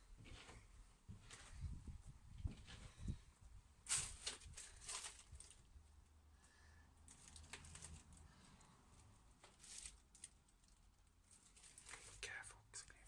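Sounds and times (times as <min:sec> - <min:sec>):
faint background hum: 0:00.0 - 0:13.0
soft clicks and rustles: 0:00.1 - 0:03.2, 0:03.8 - 0:05.8, 0:07.0 - 0:12.4.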